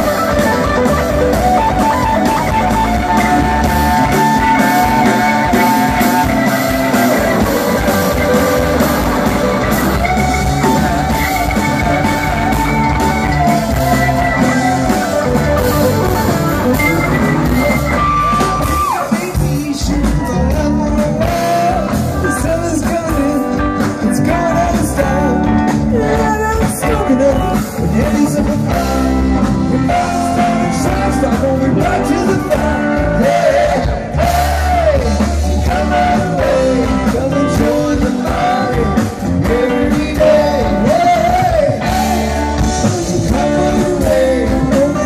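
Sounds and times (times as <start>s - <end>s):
electric guitars: 0.0s - 45.0s
rock band playing live: 0.0s - 45.0s
person singing: 17.9s - 45.0s.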